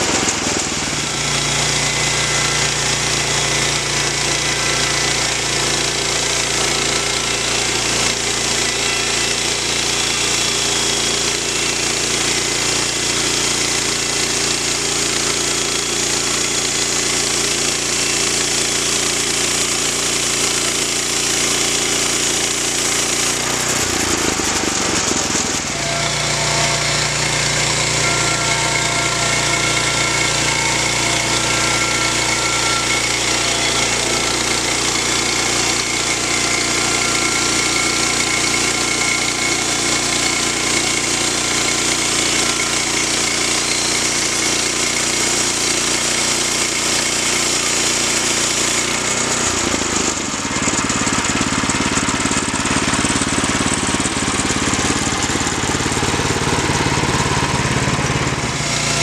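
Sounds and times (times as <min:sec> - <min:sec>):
sawmill engine under load: 0:00.0 - 0:59.0
high whine: 0:25.4 - 0:39.3.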